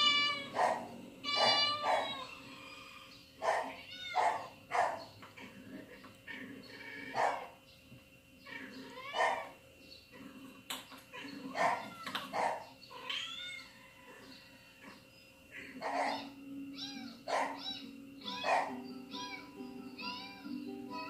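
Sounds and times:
cats meowing: 0.0 - 4.6, 8.4 - 9.6, 11.1 - 15.0, 15.6 - 21.0.

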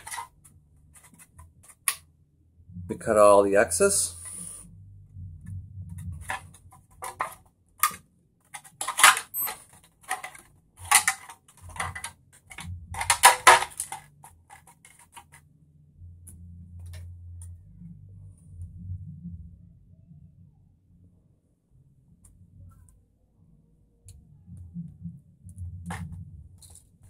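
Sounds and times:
plastic body shell clicking and crackling: 6.0 - 15.4.

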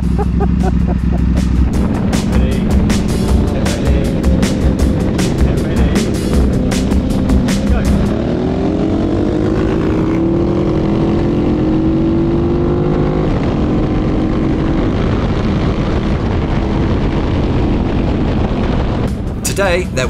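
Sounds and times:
motorcycle engine accelerating: 0.0 - 19.4
wind noise: 13.1 - 19.5.

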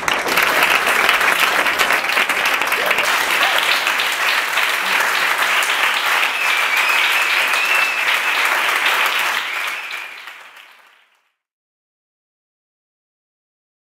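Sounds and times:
audience applauding: 0.0 - 11.2
high whistle: 5.7 - 10.4.

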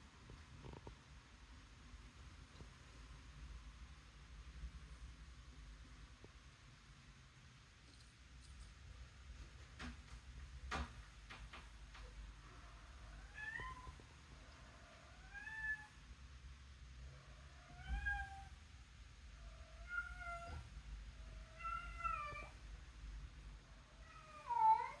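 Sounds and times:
cat meowing: 13.2 - 14.0, 15.0 - 16.0, 17.6 - 18.5, 19.6 - 20.7, 21.4 - 22.6, 24.0 - 25.0.

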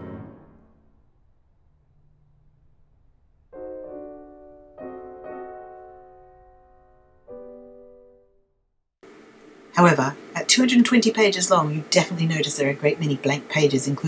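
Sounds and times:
soft piano chords: 0.0 - 8.5.

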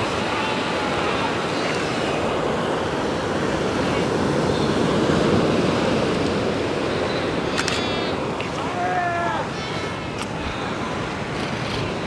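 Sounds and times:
waves breaking on rocks: 0.0 - 12.0
wind: 0.0 - 12.0
seal bleat: 7.0 - 11.1.

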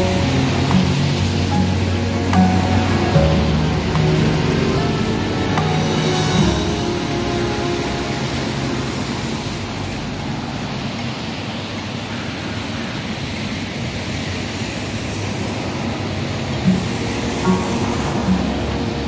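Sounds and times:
tyres hissing on wet asphalt: 0.0 - 19.0.

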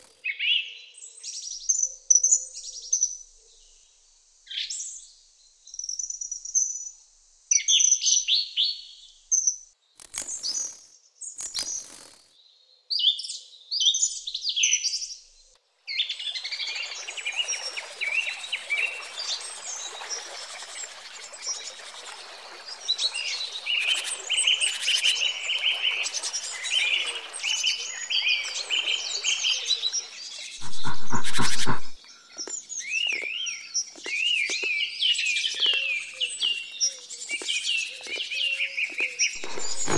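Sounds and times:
songbirds singing: 12.4 - 39.9
flowing stream: 16.2 - 32.0, 39.4 - 39.9
kingfisher whistled calls: 30.6 - 32.0
low pulsing sound: 30.6 - 32.0.

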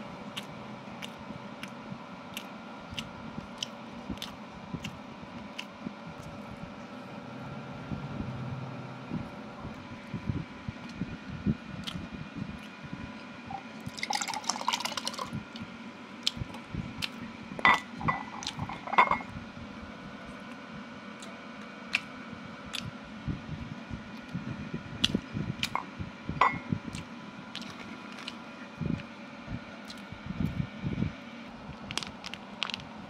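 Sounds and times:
liquid pouring into a glass: 13.9 - 15.3.

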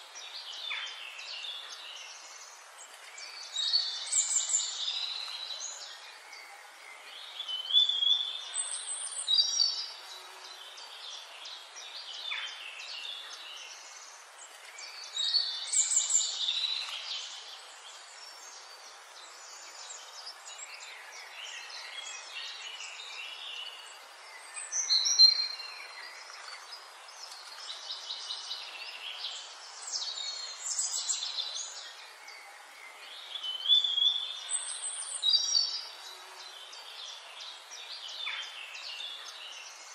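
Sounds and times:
small birds chirping: 0.0 - 39.9
steady outdoor hiss: 0.0 - 39.9.

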